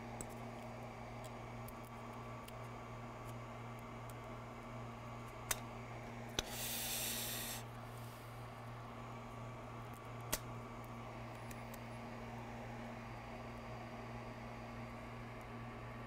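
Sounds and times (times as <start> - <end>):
steady low hum: 0.0 - 16.0
short hiss: 6.4 - 7.6.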